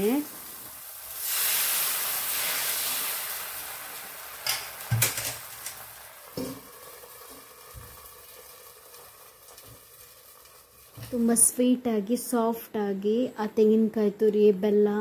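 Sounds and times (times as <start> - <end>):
batter sizzling on a hot pan: 0.0 - 11.6.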